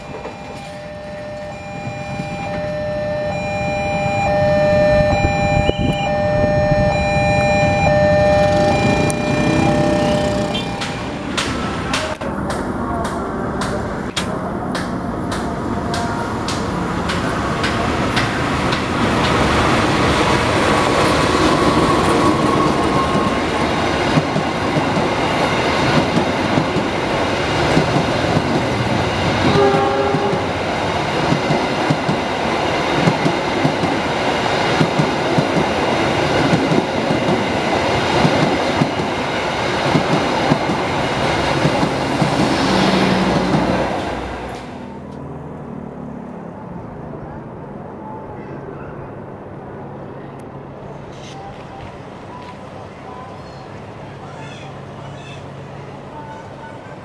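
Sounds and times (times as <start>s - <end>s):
train running past: 0.0s - 57.0s
train horn note: 4.3s - 11.0s, 29.4s - 30.6s.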